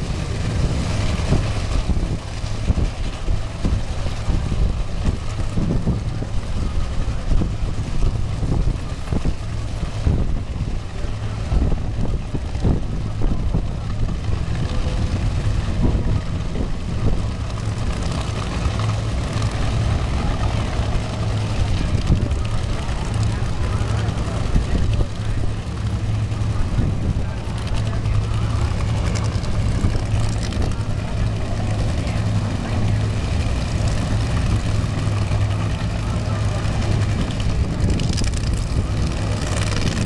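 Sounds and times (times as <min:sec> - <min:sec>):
drag racing engines idling: 0:00.0 - 0:40.0.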